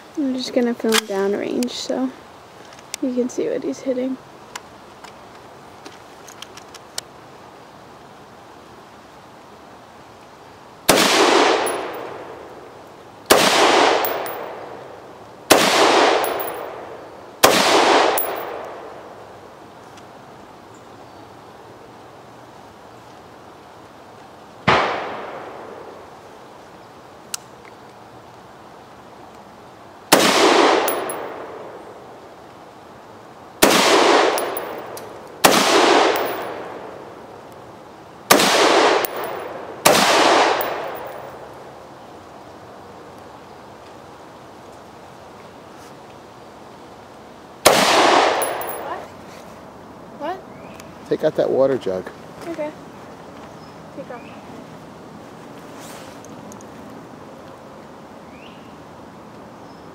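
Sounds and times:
rifle shots echoing: 0:10.9 - 0:12.3, 0:13.3 - 0:14.8, 0:15.5 - 0:19.0, 0:24.7 - 0:25.9, 0:30.1 - 0:31.7, 0:33.6 - 0:36.9, 0:38.3 - 0:41.2, 0:47.6 - 0:49.0.

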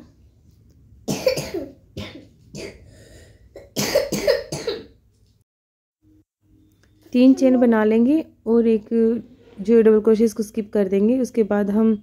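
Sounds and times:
person coughing: 0:01.1 - 0:05.0.

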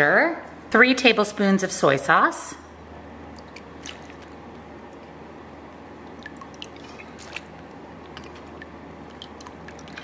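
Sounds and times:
steady low hum: 0:00.0 - 0:10.0
faint dripping: 0:06.0 - 0:10.0.

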